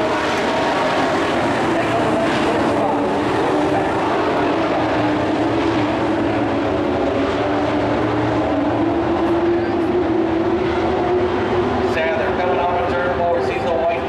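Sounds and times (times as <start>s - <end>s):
race truck engines droning: 0.0s - 14.0s.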